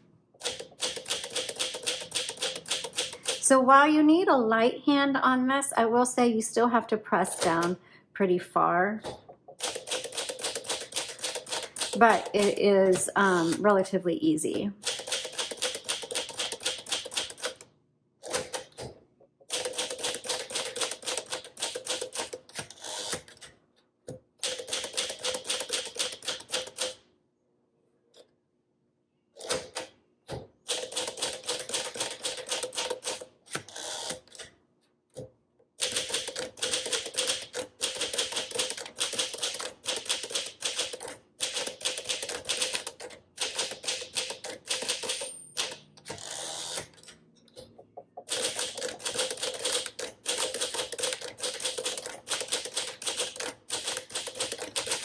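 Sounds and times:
manual typewriter key clacks: 0.4s - 3.4s, 9.6s - 12.6s, 14.8s - 17.6s, 19.5s - 23.4s, 24.4s - 27.0s, 30.7s - 34.4s, 35.8s - 46.2s, 48.3s - 55.0s.

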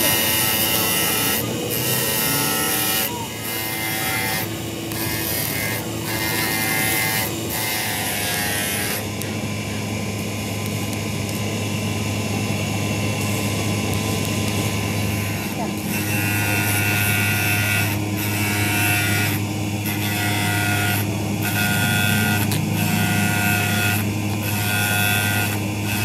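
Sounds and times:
grinding hiss: 0.0s - 11.6s
power tool motor hum: 0.0s - 26.0s.

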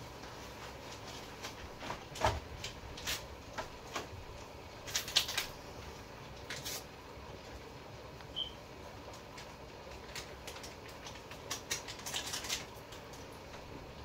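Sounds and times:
food packaging rustling and tapping: 0.0s - 5.6s, 9.1s - 13.8s.

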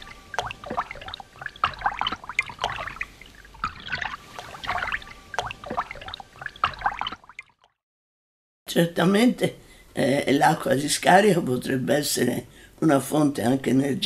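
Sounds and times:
water pouring and splashing: 0.0s - 7.7s.

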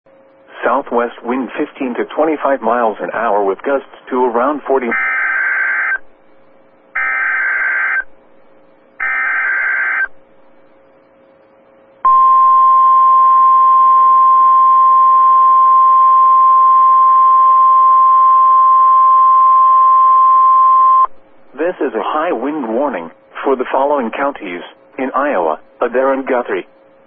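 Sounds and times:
steady warning alarm tone: 4.8s - 6.0s, 6.9s - 10.2s, 12.0s - 21.1s.

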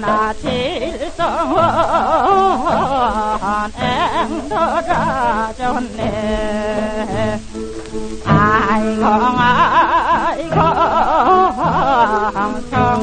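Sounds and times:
folk song with wavering voice: 0.0s - 13.0s.

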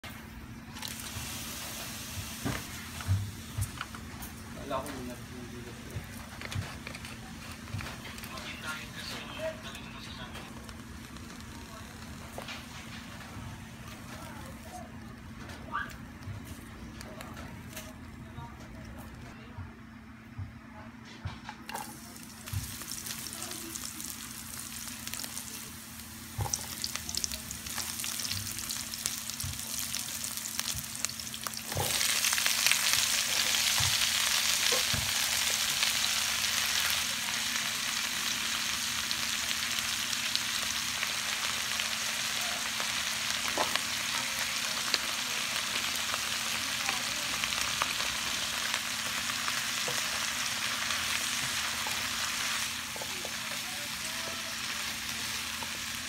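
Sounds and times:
food sizzling in hot oil: 0.7s - 6.9s, 9.6s - 13.0s, 21.7s - 56.0s.

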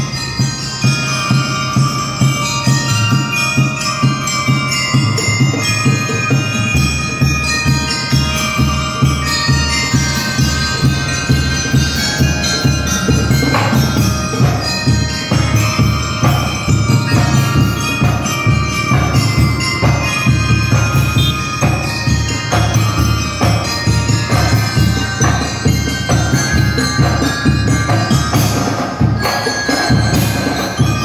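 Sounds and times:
bell lyres ringing melody: 0.0s - 31.0s
steady drum beat: 0.0s - 31.0s.

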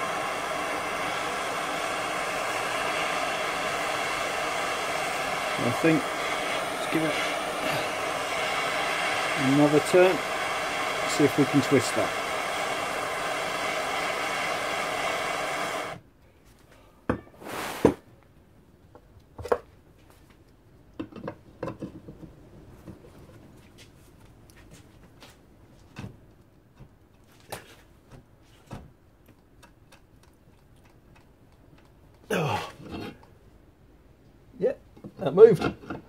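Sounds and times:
blowtorch hissing: 0.0s - 16.0s, 17.4s - 18.0s.

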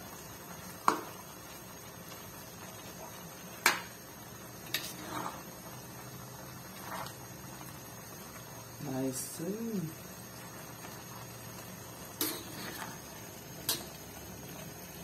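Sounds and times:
spatula scraping wok: 4.5s - 7.4s, 12.0s - 14.6s.

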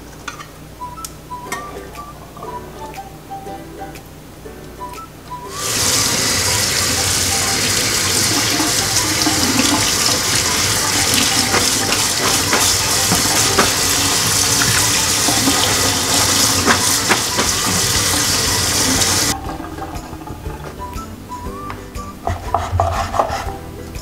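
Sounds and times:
tap water running into strainer: 5.5s - 20.9s.

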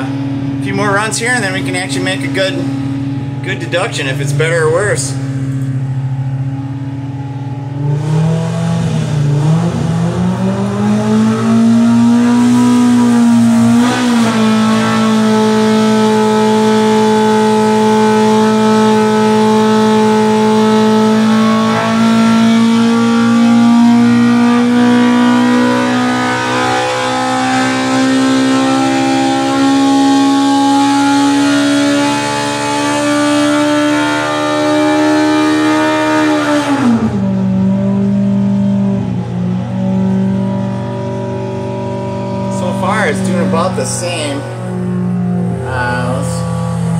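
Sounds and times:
engine revving at full throttle: 0.0s - 46.9s.

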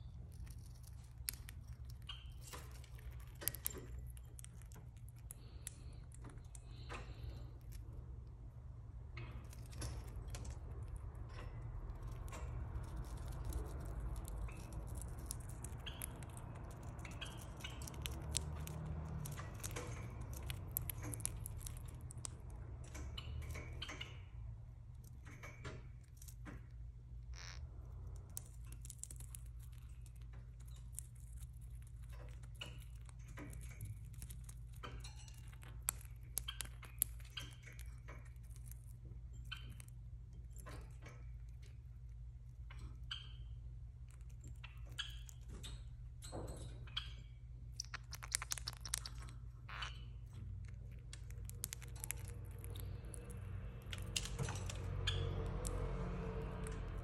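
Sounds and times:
bird beak crunching pepper: 0.0s - 7.9s, 11.3s - 24.1s, 27.4s - 41.7s, 47.7s - 57.0s.

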